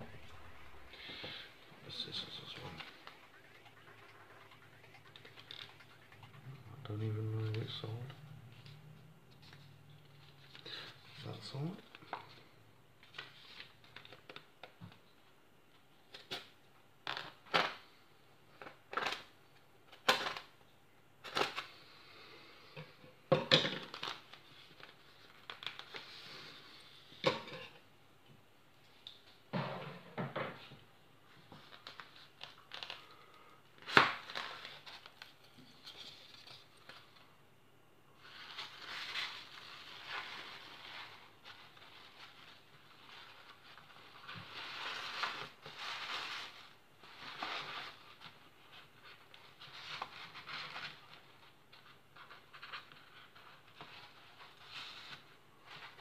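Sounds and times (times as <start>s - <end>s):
tissue paper rustling: 38.2s - 56.0s.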